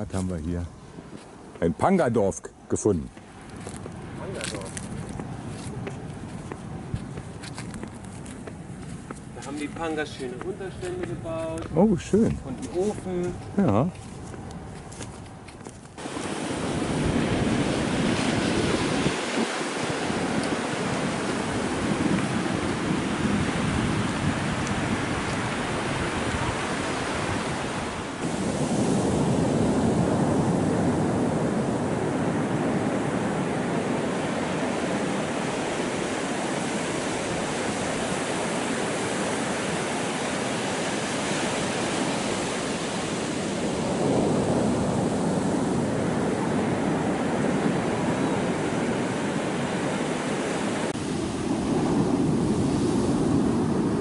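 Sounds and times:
surf breaking on sandy beach: 16.0 - 54.0.

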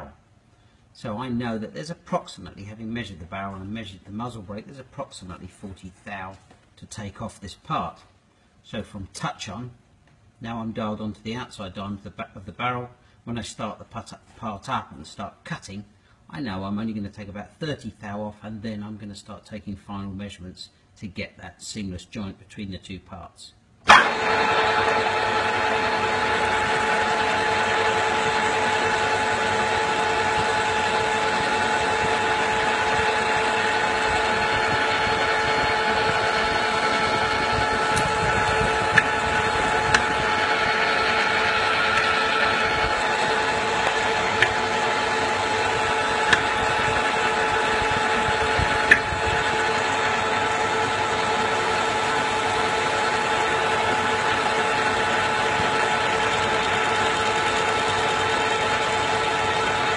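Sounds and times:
metal lathe whining: 23.9 - 59.9.

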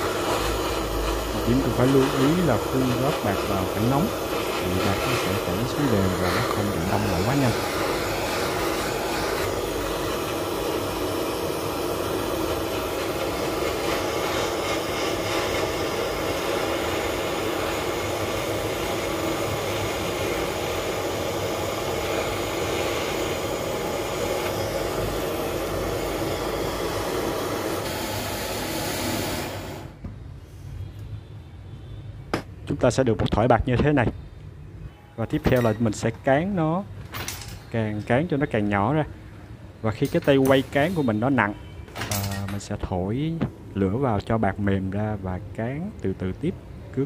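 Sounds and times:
gas torch flame hissing: 0.0 - 30.8, 37.5 - 41.6.

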